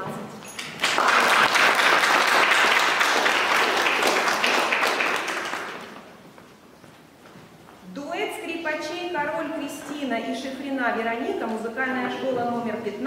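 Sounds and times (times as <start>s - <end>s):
audience applauding: 0.7s - 6.1s.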